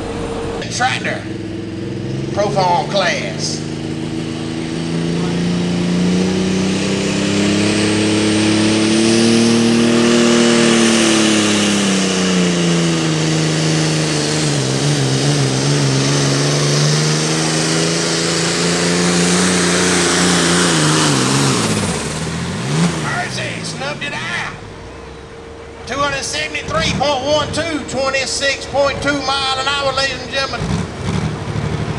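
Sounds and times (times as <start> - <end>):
tractor diesel engine at full throttle: 0.0 - 31.9.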